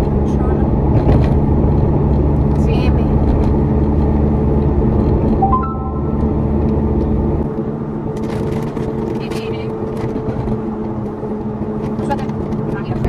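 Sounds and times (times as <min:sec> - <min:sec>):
car engine and road rumble: 0:00.0 - 0:13.0
rising three-note chime: 0:05.4 - 0:07.0.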